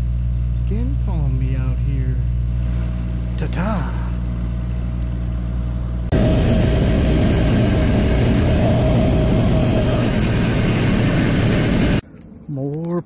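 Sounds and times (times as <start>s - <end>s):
loader engine running: 0.0s - 12.0s
engine whine: 0.0s - 12.4s
low hum: 0.0s - 12.8s.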